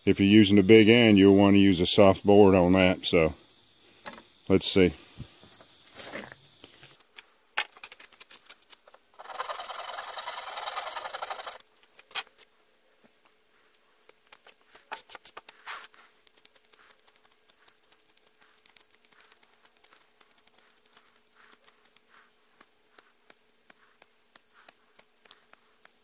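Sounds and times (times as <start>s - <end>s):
knife scraping wooden spindle: 9.2s - 12.3s.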